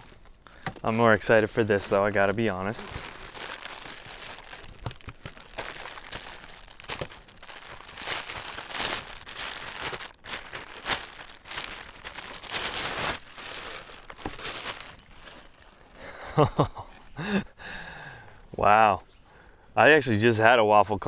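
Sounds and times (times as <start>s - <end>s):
plastic bag crinkling: 0.0s - 16.2s.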